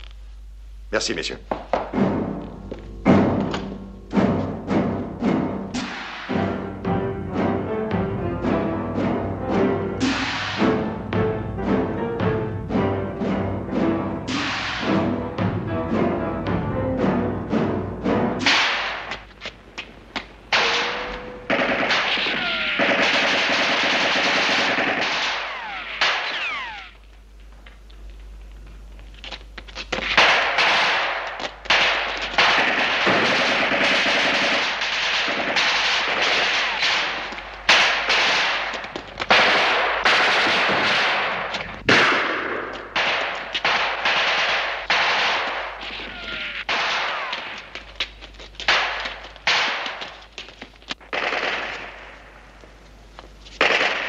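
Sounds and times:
gunshots: 5.7s - 6.6s, 10.0s - 10.8s, 14.3s - 15.2s, 18.4s - 19.2s, 20.5s - 27.0s, 30.0s - 47.8s, 48.7s - 50.2s, 51.0s - 52.2s, 53.6s - 54.0s
machine-gun bursts: 21.5s - 27.0s, 30.1s - 42.3s
falling whines: 22.2s - 22.9s, 25.4s - 27.1s, 45.8s - 47.5s.

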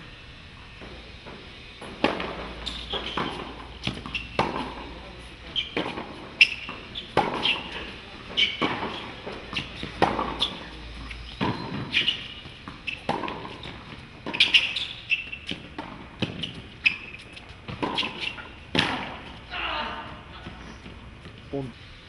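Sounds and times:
rackets striking tennis ball: 0.8s - 21.4s
ball bouncing on hard court: 1.8s - 5.0s, 5.6s - 19.4s
shoe squeaks: 2.3s - 18.6s.

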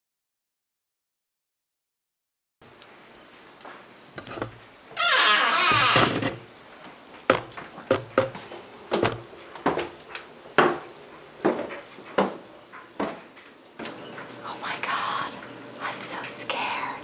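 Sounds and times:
loud rasping creak: 4.2s - 6.4s
footsteps on wooden floor: 7.3s - 10.0s.

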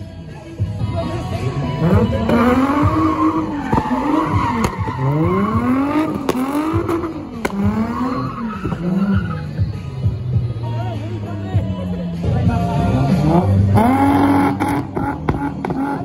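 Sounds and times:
car engine revving: 1.1s - 16.0s
tyres screeching: 1.8s - 10.1s.

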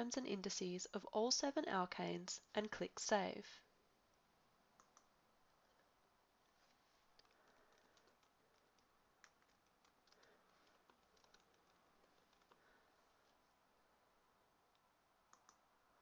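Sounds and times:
typing on computer keyboard: 7.2s - 12.6s.

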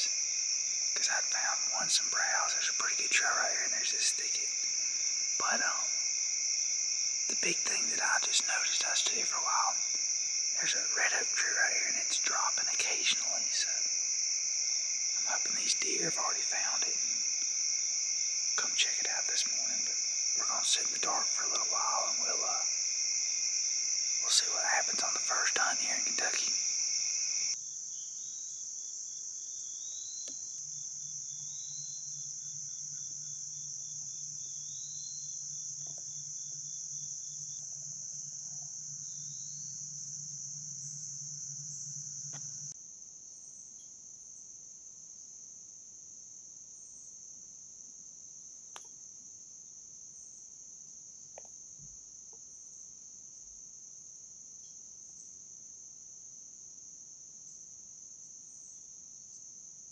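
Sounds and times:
crickets and insects trilling: 0.0s - 45.6s.

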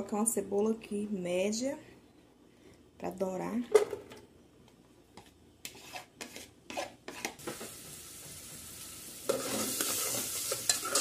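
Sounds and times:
oil sizzling: 7.1s - 11.0s.

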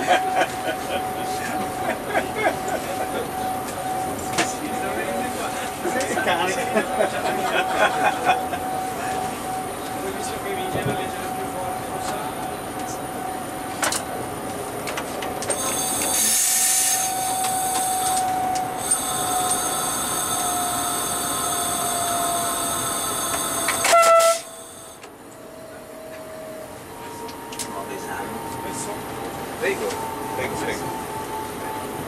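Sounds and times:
electric train drive whine: 0.0s - 32.0s
high-pitched metallic squeal: 15.5s - 25.0s
loud tonal horn blast: 15.8s - 25.0s.

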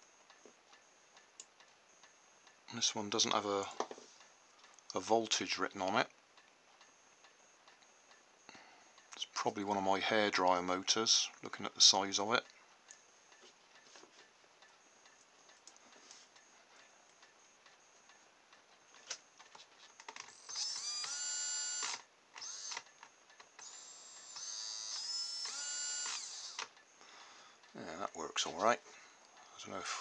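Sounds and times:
small electric motor whining: 20.3s - 22.9s, 23.6s - 26.7s.

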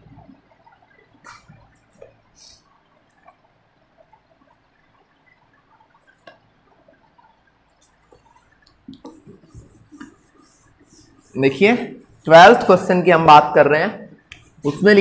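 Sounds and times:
duster rubbing on whiteboard: 8.1s - 12.9s.

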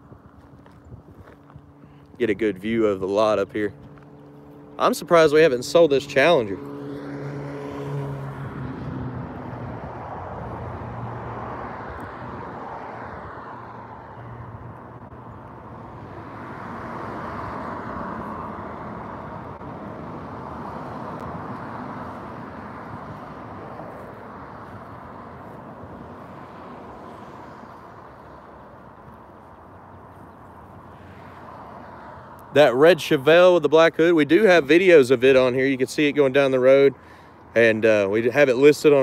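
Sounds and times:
vehicles passing on road: 0.0s - 39.0s.

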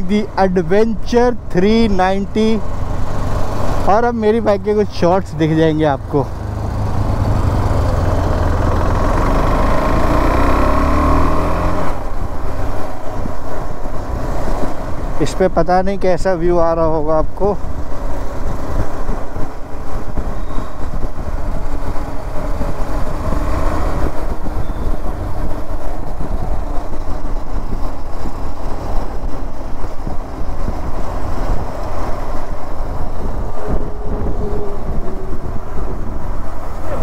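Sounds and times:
wind buffeting on microphone: 0.0s - 37.0s.

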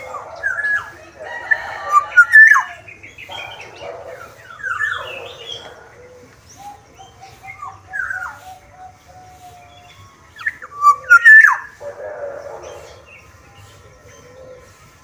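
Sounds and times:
oriole calling: 0.0s - 15.0s.

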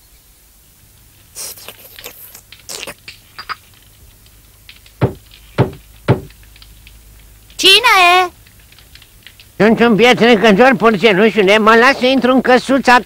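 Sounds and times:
knocks on a door: 5.0s - 6.3s.

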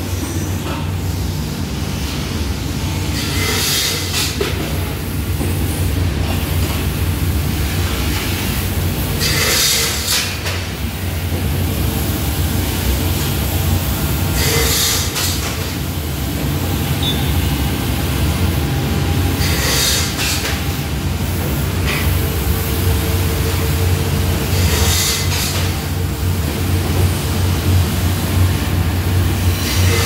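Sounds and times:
harsh high-pitched machine noise: 0.0s - 30.0s
workshop machinery humming: 0.0s - 30.0s.

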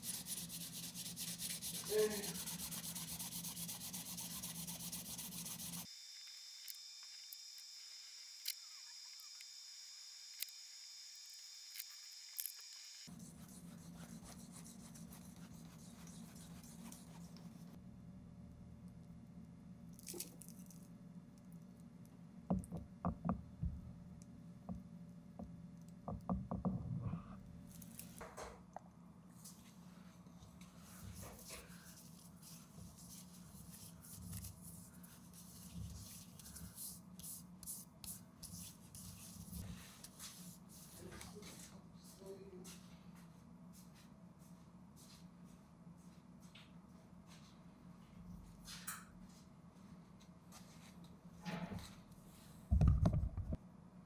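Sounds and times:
sandpaper scratching: 0.0s - 5.9s.

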